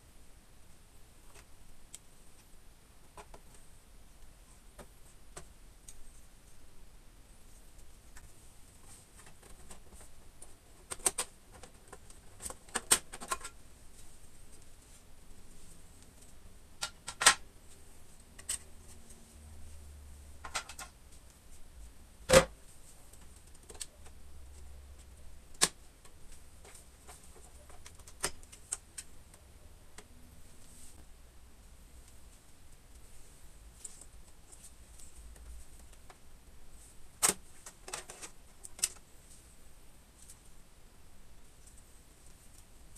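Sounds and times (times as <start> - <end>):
plastic clicks and clatter: 9.2 - 13.6, 20.4 - 21.0.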